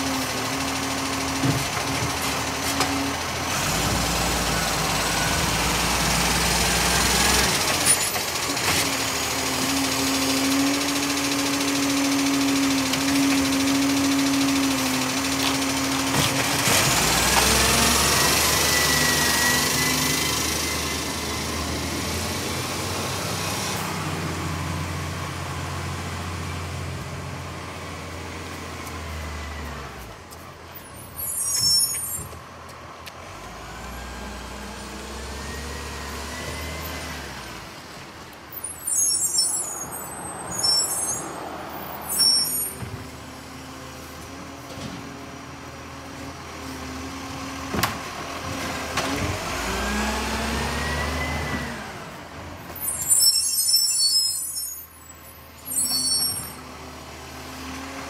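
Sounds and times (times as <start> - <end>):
garbage truck engine running: 0.0 - 29.6.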